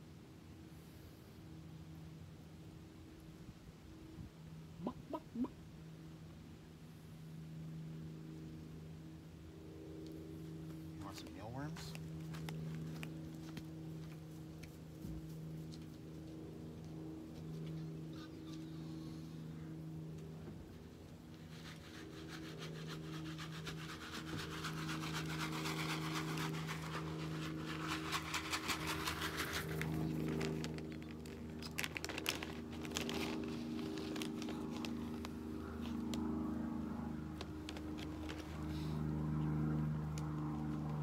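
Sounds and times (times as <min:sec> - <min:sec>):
plastic bag crinkling: 0:24.2 - 0:35.5.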